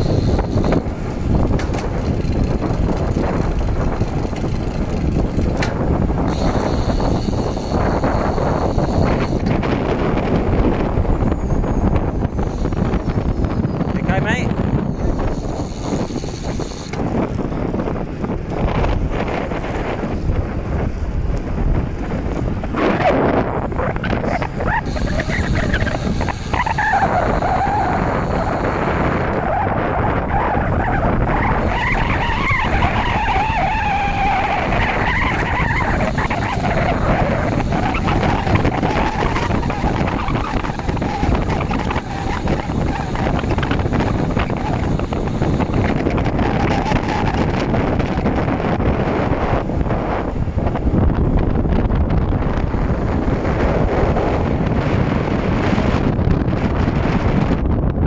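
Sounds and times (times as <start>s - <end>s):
faint wavering whine: 0.0s - 0.8s, 6.3s - 9.5s, 24.2s - 29.2s
wind buffeting microphone: 0.0s - 58.0s.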